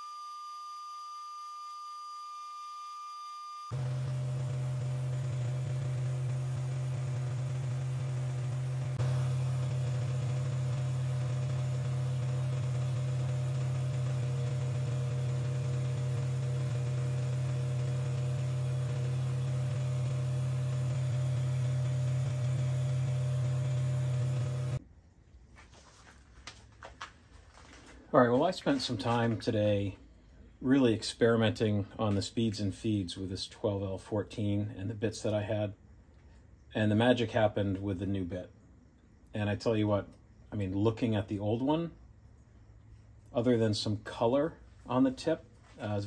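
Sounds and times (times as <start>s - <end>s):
cutting tool on spinning steel: 3.7s - 24.8s
metal lathe motor hum: 3.7s - 24.8s.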